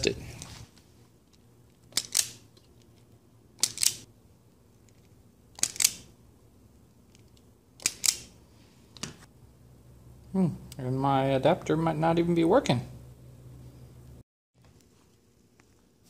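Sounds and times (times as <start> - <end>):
wire strippers snipping: 1.9 - 2.5, 3.6 - 4.1, 5.6 - 6.1, 7.1 - 8.3.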